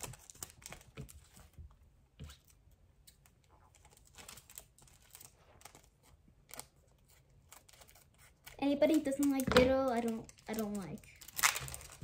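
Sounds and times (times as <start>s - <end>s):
foil pack clicks and rustles: 8.8s - 12.0s.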